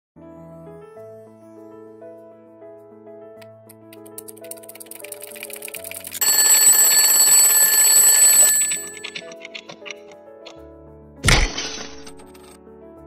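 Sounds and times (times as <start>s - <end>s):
soft background music: 0.2s - 13.0s
fast clock ticking: 4.2s - 7.3s, 8.6s - 10.1s
alarm bell ringing: 6.2s - 9.4s.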